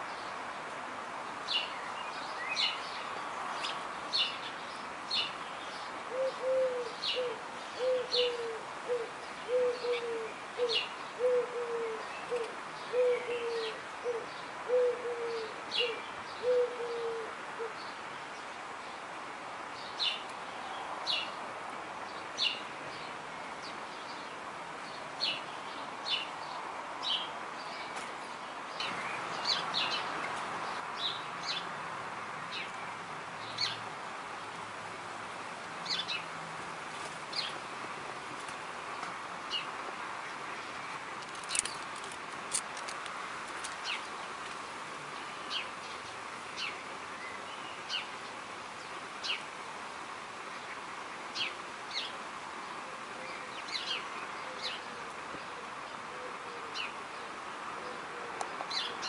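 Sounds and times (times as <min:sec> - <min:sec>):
birds chirping: 0:22.1 - 0:31.7.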